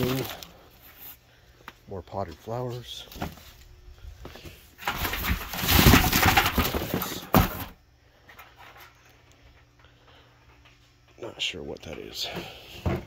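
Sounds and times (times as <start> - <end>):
cardboard packaging rustling: 0.0 - 1.2, 4.8 - 7.7.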